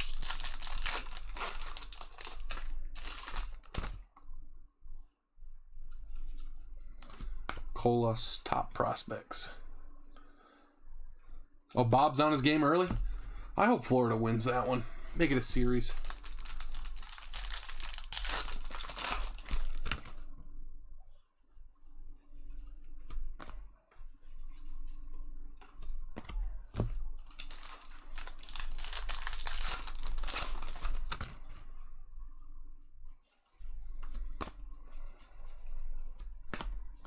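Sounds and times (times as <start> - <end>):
card wrappers tearing and crinkling: 0.0 - 4.0, 15.6 - 20.2, 27.3 - 31.4.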